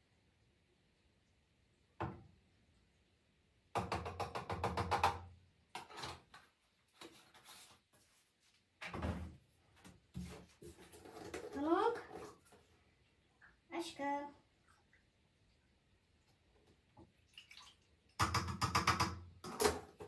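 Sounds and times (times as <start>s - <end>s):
plastic bottles knocking: 18.2s - 20.0s.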